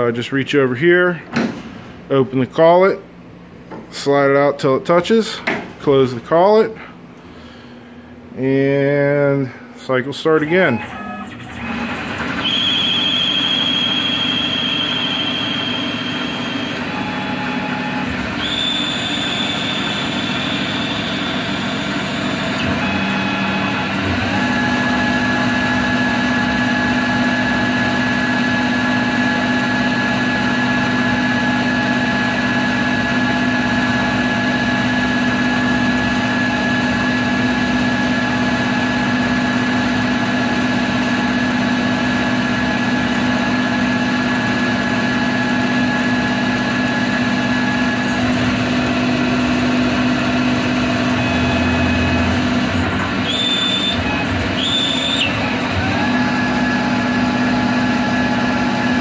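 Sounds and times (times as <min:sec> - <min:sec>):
low machine whine: 0:00.0 - 0:59.0
high machine whine: 0:07.4 - 0:59.0
lathe running: 0:10.5 - 0:59.0.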